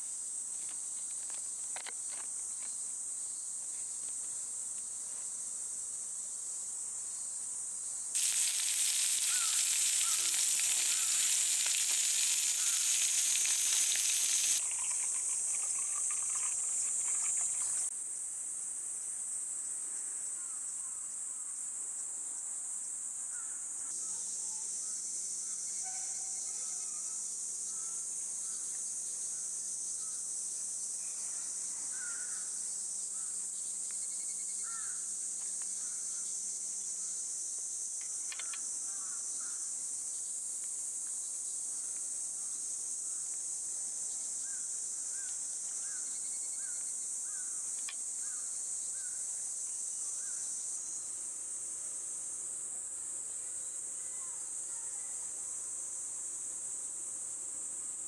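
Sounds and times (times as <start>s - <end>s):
high-pitched insect chorus: 0.0s - 58.0s
birds chirping: 8.2s - 17.9s.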